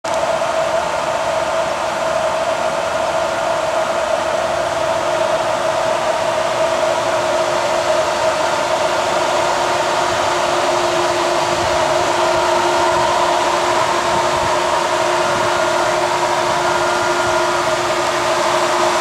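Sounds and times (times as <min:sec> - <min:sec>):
low hum: 0:00.1 - 0:19.0
mechanical whir: 0:00.1 - 0:19.0.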